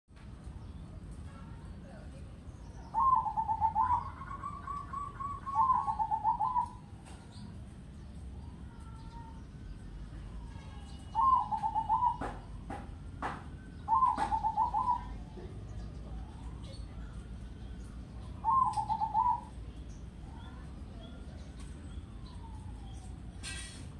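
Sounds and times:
dove cooing song: 0:02.8 - 0:07.4, 0:11.0 - 0:19.7.

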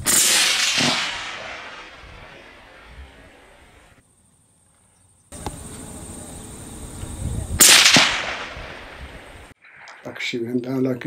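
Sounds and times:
suppressed rifle shot: 0:00.0 - 0:03.8, 0:07.6 - 0:10.2.

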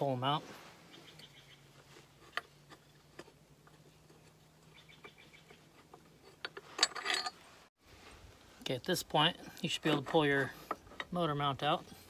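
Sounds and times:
metal clatter: 0:05.9 - 0:07.4.

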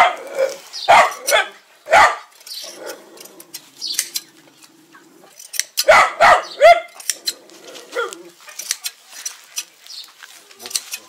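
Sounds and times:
dog barking: 0:00.0 - 0:03.0, 0:05.8 - 0:07.0, 0:07.9 - 0:08.2.

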